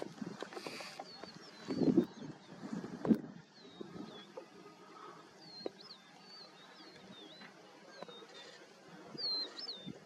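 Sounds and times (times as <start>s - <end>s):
bird whistling song: 5.4s - 10.0s.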